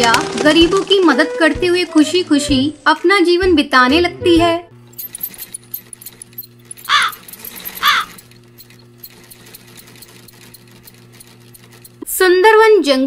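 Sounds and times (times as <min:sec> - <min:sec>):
sewing machine humming and ticking: 0:04.8 - 0:12.5
crow cawing: 0:06.8 - 0:08.2.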